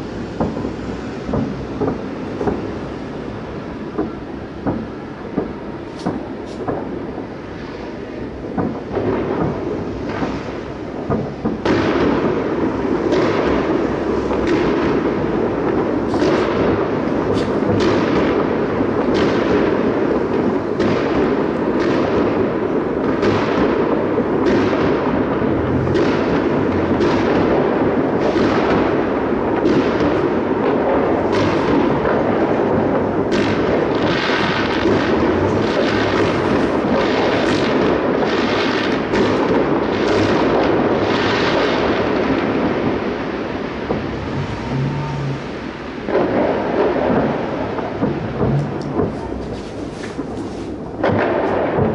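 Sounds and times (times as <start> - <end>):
fireworks shells bursting: 19.4 - 30.4, 31.2 - 51.9
low rumble: 24.2 - 28.2, 33.1 - 37.2, 43.6 - 46.4, 47.1 - 50.3.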